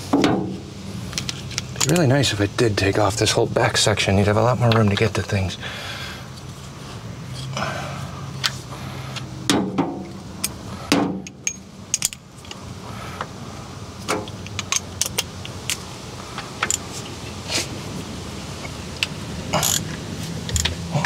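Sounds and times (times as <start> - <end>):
hand tools clanking on metal: 0.2 - 2.1, 9.5 - 12.6, 19.5 - 21.0.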